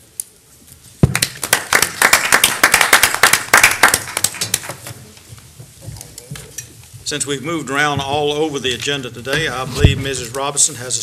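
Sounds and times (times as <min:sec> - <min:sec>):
small group applauding: 0:01.0 - 0:04.9.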